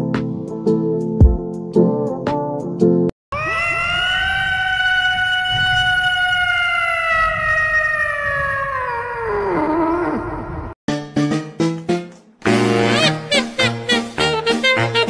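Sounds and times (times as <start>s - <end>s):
cat meowing long: 3.3s - 10.6s.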